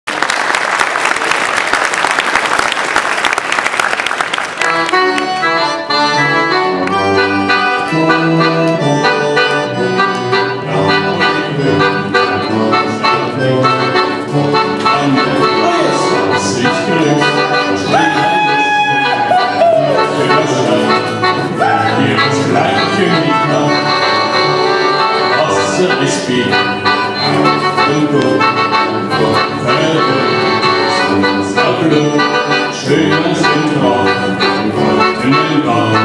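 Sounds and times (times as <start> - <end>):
audience applause: 0.0 - 5.3
folk band playing dance tune: 1.1 - 36.0
accordion melody: 3.4 - 36.0.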